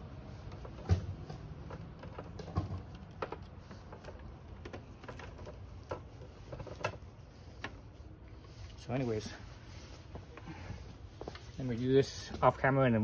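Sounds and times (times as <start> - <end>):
wires and plastic connectors clicking: 0.4 - 7.8.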